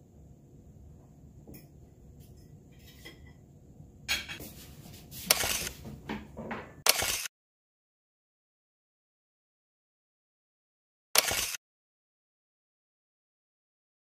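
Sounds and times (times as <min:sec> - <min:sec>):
cutlery and dishes clinking: 0:04.1 - 0:04.5.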